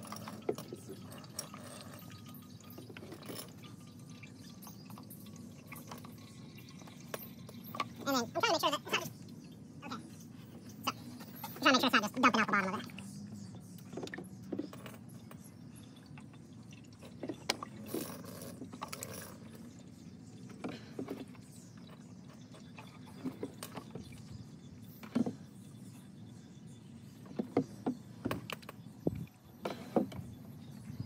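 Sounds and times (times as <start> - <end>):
oil glugging into a funnel: 0.0 - 11.6, 12.4 - 25.4.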